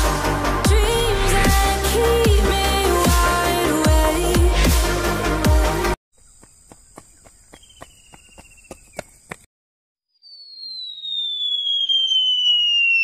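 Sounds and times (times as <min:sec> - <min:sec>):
cartoon falling whistle: 0:10.1 - 0:13.0.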